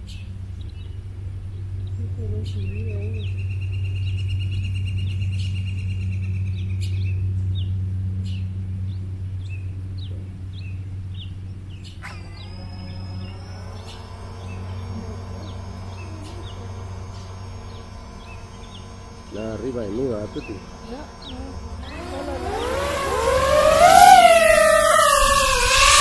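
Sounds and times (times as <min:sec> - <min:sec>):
bird trilling: 0:12.0 - 0:26.0
drone motors whining: 0:12.0 - 0:26.0.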